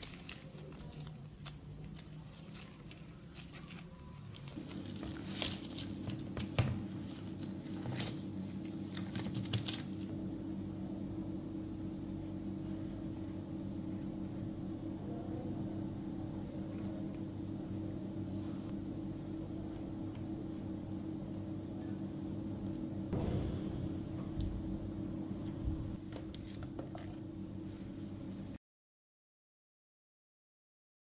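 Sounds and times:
steady low hum: 0.0s - 28.6s.

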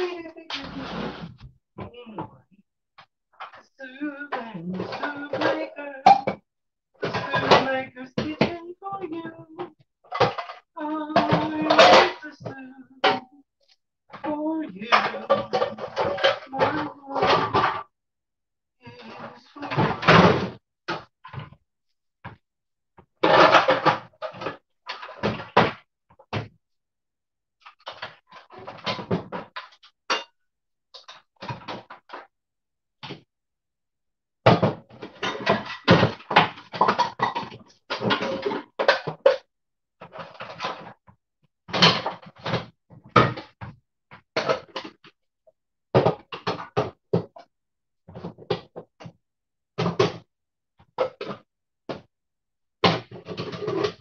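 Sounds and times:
cookware clattering: 11.2s - 12.3s.

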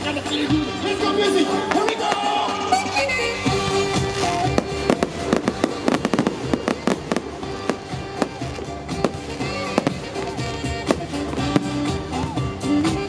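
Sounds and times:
music playing: 0.0s - 13.0s
fireworks bangs and cracks: 1.4s - 13.0s.

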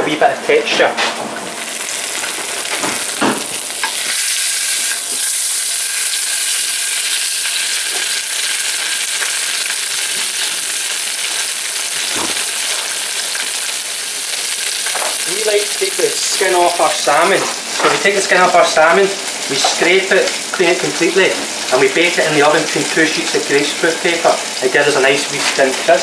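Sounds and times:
fish sizzling in hot oil: 1.5s - 26.0s.

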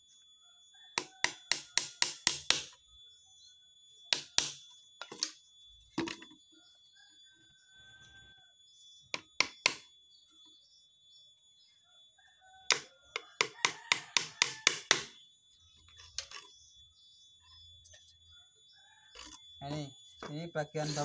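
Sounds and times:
hammer striking nails into wood: 1.0s - 2.8s, 4.1s - 5.3s, 9.2s - 9.8s, 12.7s - 15.2s.

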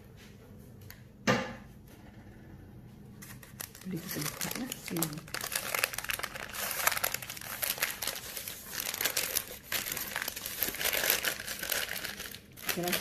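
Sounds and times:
baking paper crinkling: 3.2s - 13.0s.

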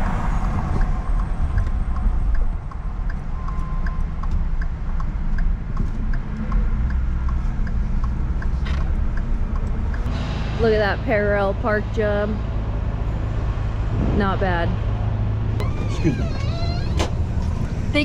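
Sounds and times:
light ticking: 0.0s - 10.1s
engine and road rumble: 0.0s - 18.0s.

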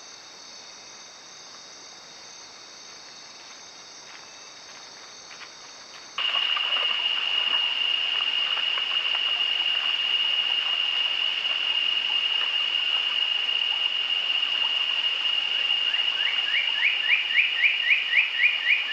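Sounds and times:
crickets chirping: 0.0s - 18.9s
animal splashing through water: 6.2s - 16.8s
stream water: 6.2s - 18.9s.

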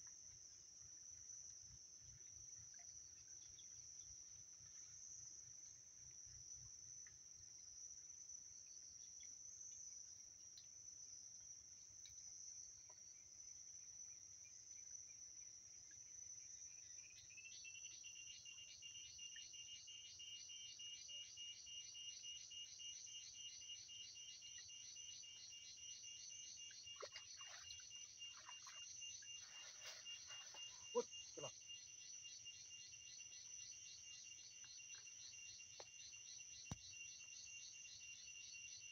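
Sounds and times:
lower pulsing insect trill: 0.0s - 38.9s
high even insect trill: 20.0s - 38.9s.

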